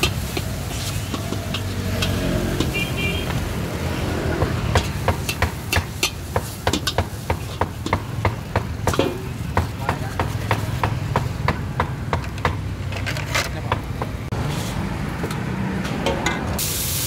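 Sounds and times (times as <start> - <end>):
metal spatula scraping a wok: 0.0 - 10.8.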